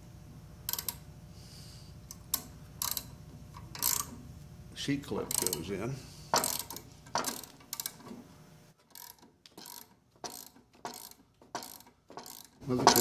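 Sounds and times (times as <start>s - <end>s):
ratchet wrench clicking: 0.7s - 1.0s, 2.2s - 4.1s, 5.3s - 5.7s, 6.4s - 8.0s, 8.8s - 13.0s.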